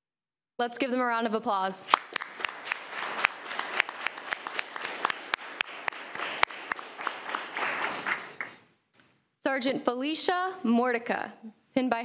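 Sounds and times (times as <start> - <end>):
audience applauding: 1.9 - 8.6.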